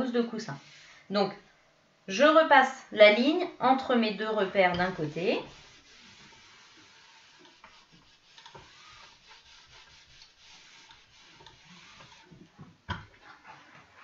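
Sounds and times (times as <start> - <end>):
iron rubbing over fabric: 0.0 - 1.0, 4.6 - 12.5.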